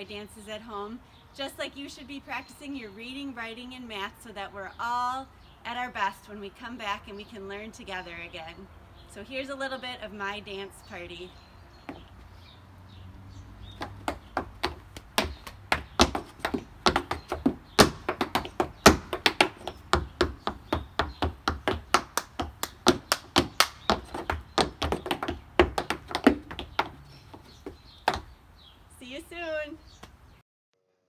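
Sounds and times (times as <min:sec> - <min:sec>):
tap shoes on wooden deck: 0:11.8 - 0:12.3, 0:13.5 - 0:28.4.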